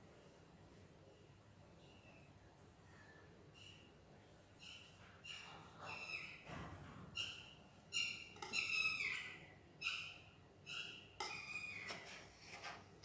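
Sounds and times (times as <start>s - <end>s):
knife scraping metal plate: 11.2s - 12.9s.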